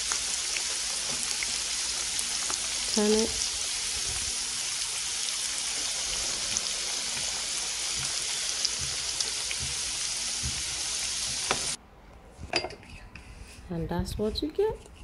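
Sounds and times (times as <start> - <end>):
potatoes deep-frying in oil: 0.0 - 11.8.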